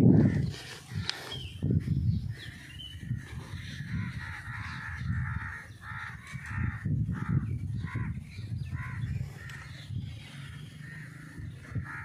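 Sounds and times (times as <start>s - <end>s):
crows cawing: 2.4s - 12.0s.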